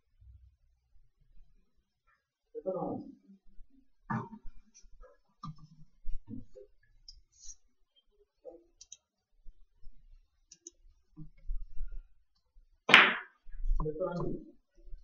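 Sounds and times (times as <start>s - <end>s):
cue striking billiard ball: 12.9s - 13.3s.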